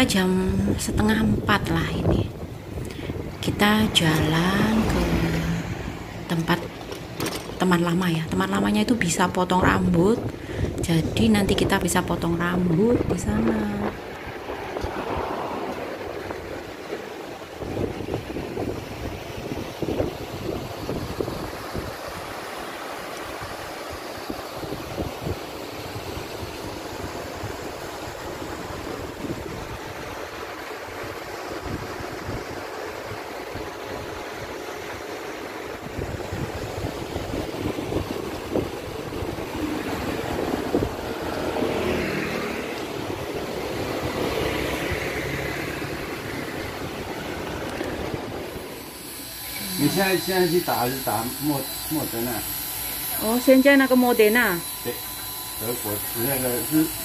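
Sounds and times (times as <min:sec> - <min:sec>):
wind buffeting microphone: 0:00.0 - 0:22.4, 0:23.4 - 0:42.2, 0:42.8 - 0:49.0
road traffic noise: 0:00.0 - 0:57.0
vehicle passing close by: 0:03.1 - 0:06.4, 0:13.8 - 0:18.8, 0:39.2 - 0:48.5.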